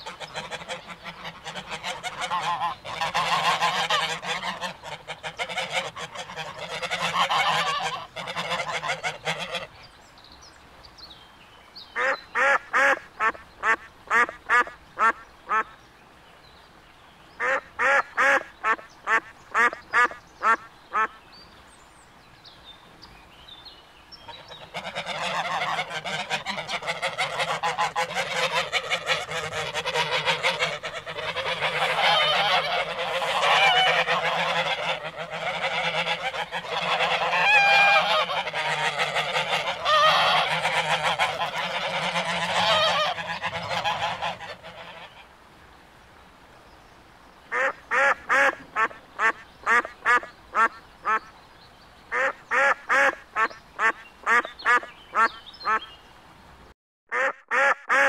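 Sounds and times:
duck flock chatter: 0.0s - 9.7s, 24.3s - 45.2s
loud duck quacks: 0.0s - 9.7s, 12.0s - 15.7s, 17.4s - 21.2s, 24.7s - 45.2s, 47.5s - 51.2s, 52.1s - 55.9s, 57.1s - 58.0s.

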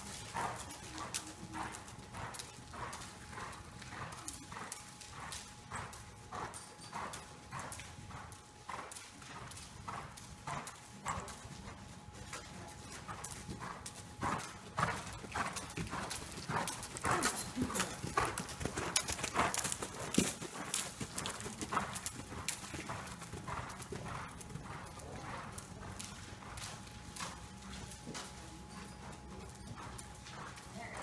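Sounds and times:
horse hoofbeats on soft dirt: 0.0s - 31.0s.

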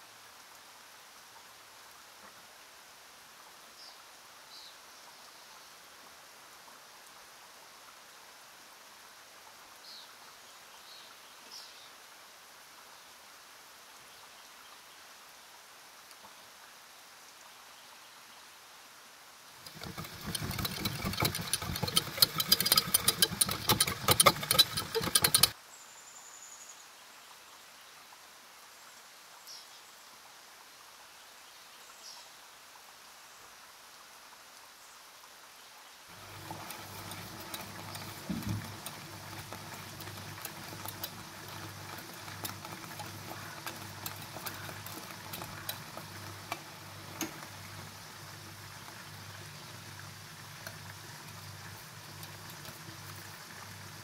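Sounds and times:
whisk beating in metal pan: 19.6s - 25.6s, 36.1s - 49.8s.

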